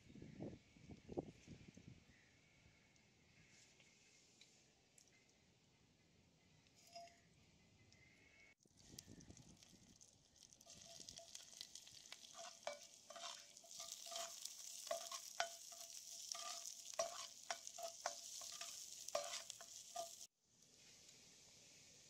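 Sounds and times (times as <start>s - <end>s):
onions sizzling in hot oil: 8.8s - 22.0s
ladle scraping and knocking pot: 10.7s - 20.3s.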